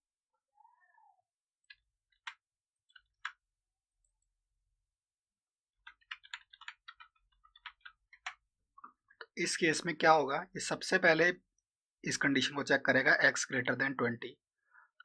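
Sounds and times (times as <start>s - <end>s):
keyboard or mouse clicks: 1.6s - 3.5s, 5.8s - 9.4s
keyboard typing: 1.6s - 4.4s, 5.7s - 9.4s.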